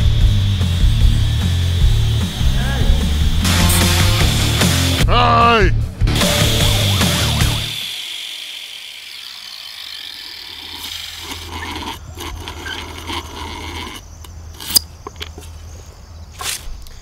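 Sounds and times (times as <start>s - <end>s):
angle grinder: 0.0s - 5.0s, 6.1s - 14.8s
hand drill rasping into wood: 6.7s - 14.8s.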